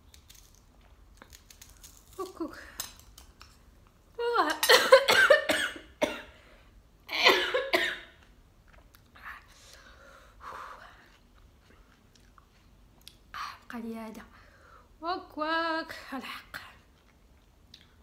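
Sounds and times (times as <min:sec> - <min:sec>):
woman coughing hard: 0:04.6 - 0:06.4, 0:07.1 - 0:08.2
faint breaths: 0:09.4 - 0:11.2.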